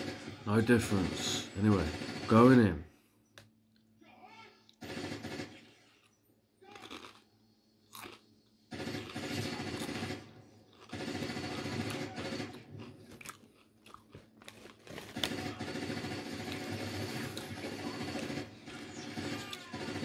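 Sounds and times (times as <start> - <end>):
chips crunching being chewed: 6.0 - 8.2, 12.8 - 15.3.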